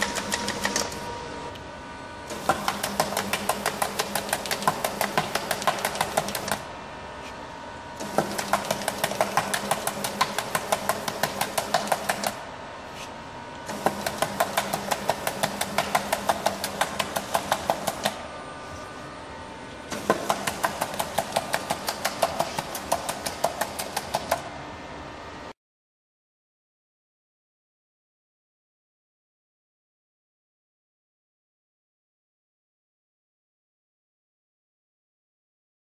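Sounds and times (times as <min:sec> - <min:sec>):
feeder machine rapid clicks: 0:00.0 - 0:01.0, 0:02.3 - 0:06.7, 0:08.0 - 0:12.4, 0:13.7 - 0:18.2, 0:19.9 - 0:24.5
motor hum: 0:00.0 - 0:25.4.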